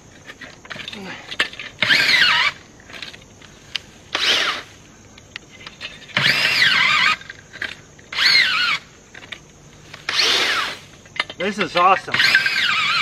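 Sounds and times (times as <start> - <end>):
earth auger motor whine: 0.2 - 3.2, 4.1 - 4.7, 6.0 - 9.4, 10.0 - 10.9, 12.0 - 13.0.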